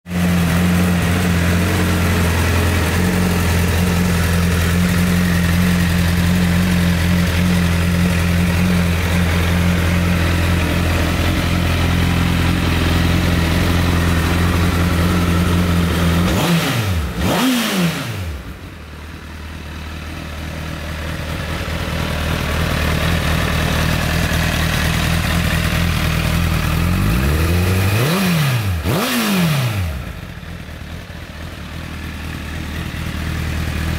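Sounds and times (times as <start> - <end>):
motorcycle engine idling and revving: 0.0 - 33.9.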